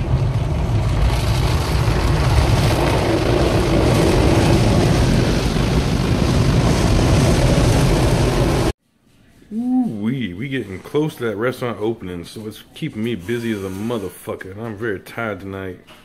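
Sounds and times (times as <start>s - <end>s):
low rumble: 0.0s - 8.8s.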